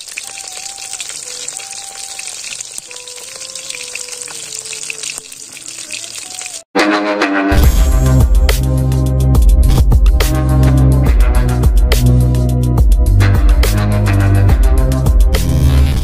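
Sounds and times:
fish sizzling in hot oil: 0:00.0 - 0:06.7
loud electronic music: 0:06.8 - 0:16.0.

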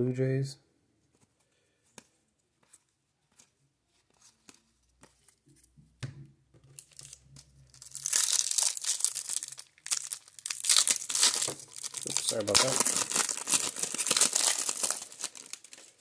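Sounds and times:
foil wrapper crinkling and tearing: 0:06.8 - 0:16.0.

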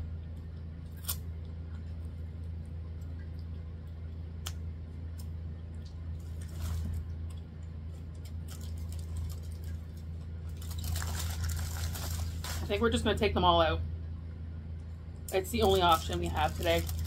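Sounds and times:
steady low hum: 0:00.0 - 0:17.0
aluminium foil crinkling: 0:06.2 - 0:13.0, 0:15.3 - 0:17.0.

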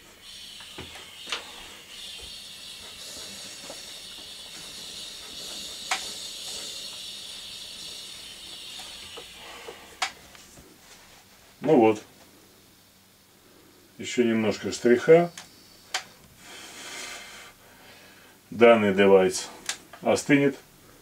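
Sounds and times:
gas torch hissing: 0:00.0 - 0:10.6, 0:14.4 - 0:17.6
sharp clicks: 0:05.8 - 0:07.0.

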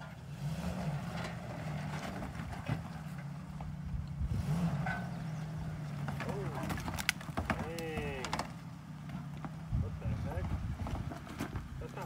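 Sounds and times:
engine running at low throttle: 0:00.0 - 0:12.0.

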